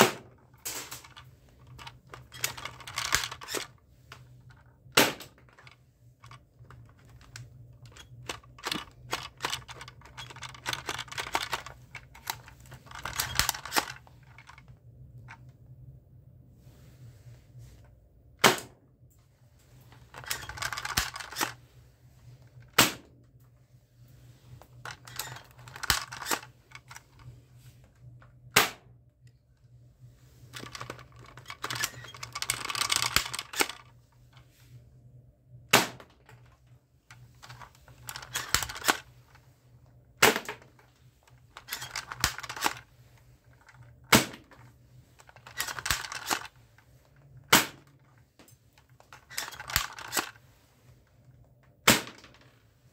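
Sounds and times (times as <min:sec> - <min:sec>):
plastic rattling and clicking: 0:00.0 - 0:15.6, 0:19.7 - 0:23.5, 0:24.5 - 0:34.5, 0:35.7 - 0:52.6.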